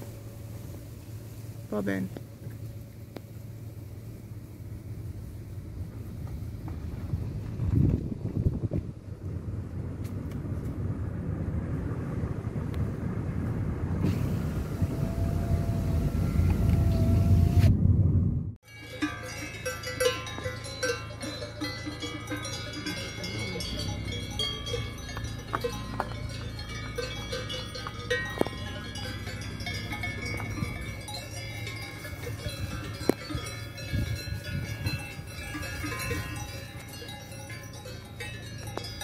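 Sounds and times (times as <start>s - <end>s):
cattle bells clanking: 18.6s - 39.0s.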